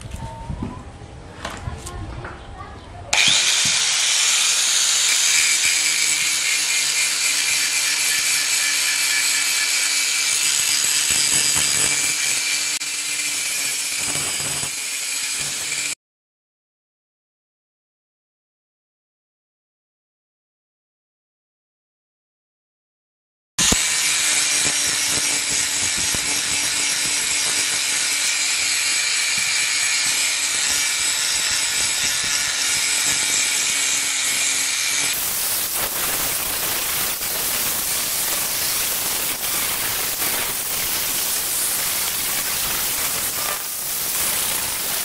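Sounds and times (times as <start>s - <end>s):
angle grinder grinding steel: 3.2s - 16.0s, 23.6s - 45.0s.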